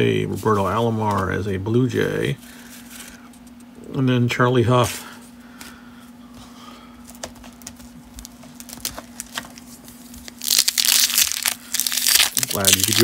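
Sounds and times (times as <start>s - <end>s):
wrapper tearing open: 8.6s - 9.6s, 10.2s - 13.0s.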